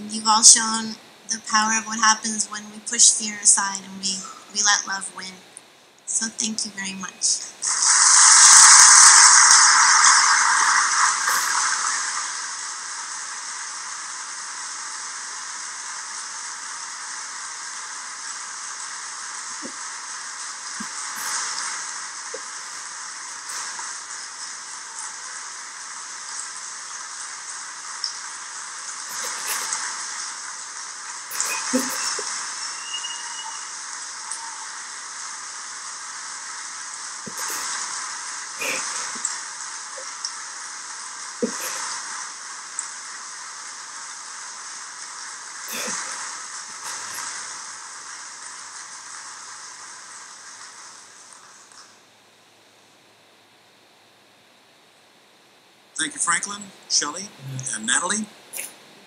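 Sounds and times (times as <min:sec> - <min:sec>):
audience applauding: 0:08.0 - 0:12.6.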